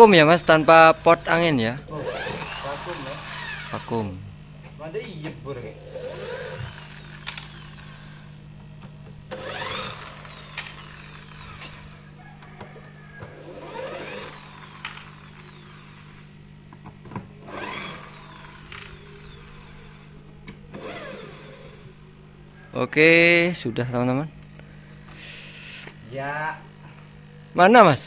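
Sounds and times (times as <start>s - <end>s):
electric drill motor spinning: 0.0s - 4.5s, 5.6s - 22.5s, 24.4s - 28.0s
steady low hum: 0.0s - 28.0s
sharp clicks: 7.2s - 7.6s.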